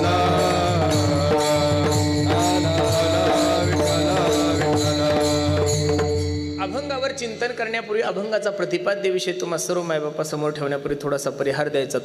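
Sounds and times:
hand drum: 0.0 - 6.7.

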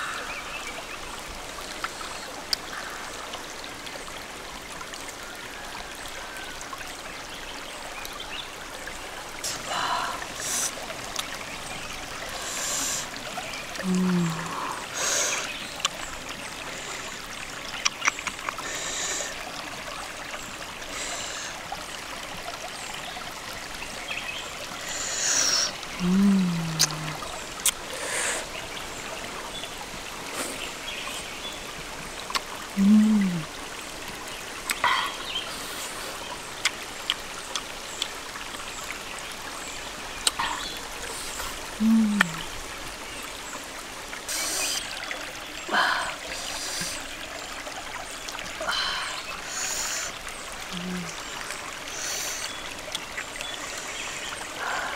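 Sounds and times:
stream trickling over rocks: 0.0 - 54.9
person humming while tasting: 13.8 - 14.8, 26.0 - 27.2, 32.8 - 33.5, 41.8 - 42.5, 50.7 - 51.2.

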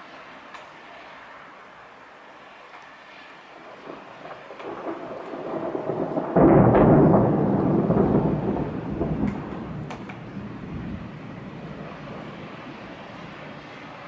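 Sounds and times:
thunder rumbling: 3.6 - 14.0.

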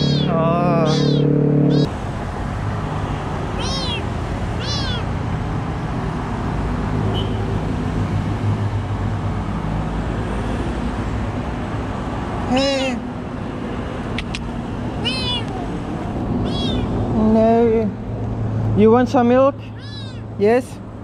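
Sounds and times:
small cat meowing: 0.0 - 1.9, 3.6 - 5.1, 15.0 - 15.7, 16.4 - 17.0, 19.7 - 20.3
street traffic hum: 0.0 - 21.0.

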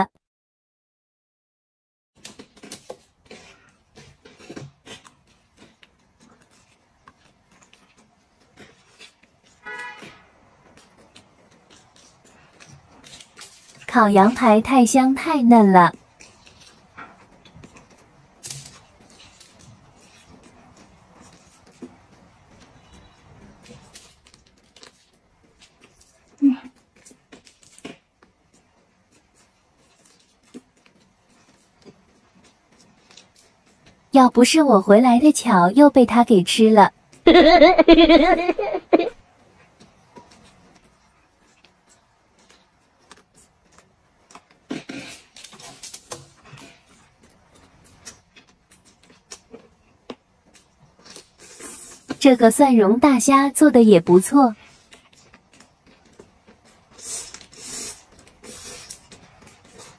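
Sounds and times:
chewing and gnawing meat: 2.3 - 9.6, 10.6 - 13.9, 16.0 - 34.1, 39.8 - 52.2, 54.6 - 59.9.

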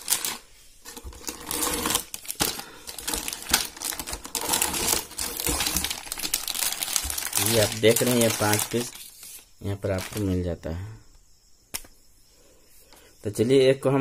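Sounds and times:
plastic wrap crinkling: 0.0 - 10.4.

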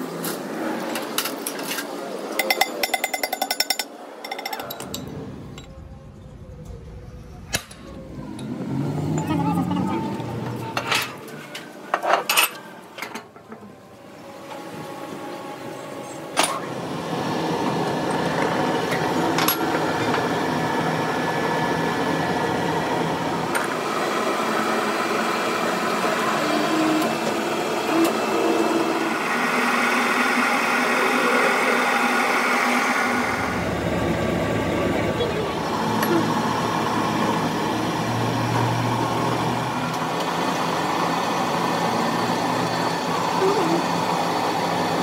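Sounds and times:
metal clinks and knocks: 2.4 - 5.7
machinery running: 4.1 - 45.0.

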